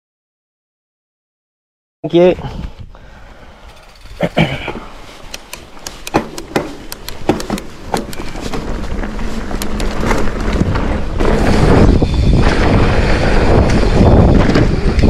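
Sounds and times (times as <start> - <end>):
bike clicks and clatter: 3.6 - 15.0
tyre rumble on dirt: 6.2 - 15.0
wind on microphone: 7.6 - 15.0.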